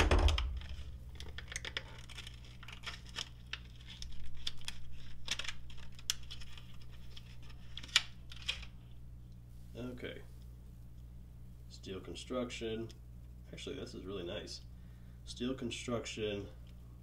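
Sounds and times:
plastic crinkling: 0.0 - 9.0
blister pack tearing: 0.1 - 8.7.

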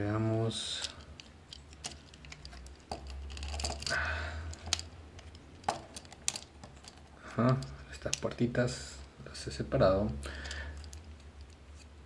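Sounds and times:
plastic toy parts clicking: 0.8 - 3.9, 4.5 - 8.3.

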